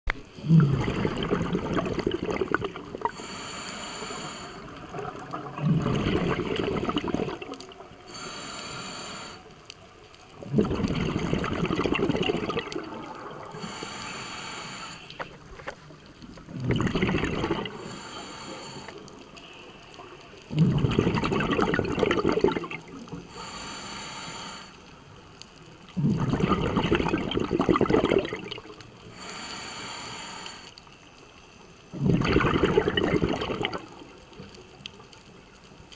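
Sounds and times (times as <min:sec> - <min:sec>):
exhaled bubbles gushing: 0:00.2 - 0:03.2, 0:04.6 - 0:08.1, 0:10.3 - 0:13.7, 0:15.2 - 0:18.0, 0:20.0 - 0:23.3, 0:25.9 - 0:28.8, 0:31.9 - 0:34.6
regulator inhale hiss: 0:03.0 - 0:04.8, 0:08.0 - 0:09.6, 0:13.5 - 0:15.4, 0:17.7 - 0:20.1, 0:23.2 - 0:25.1, 0:29.0 - 0:31.0.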